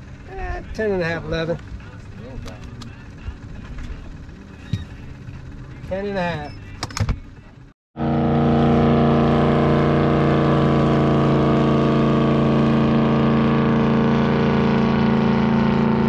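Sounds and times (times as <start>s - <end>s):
boat engine droning: 0.0s - 16.0s.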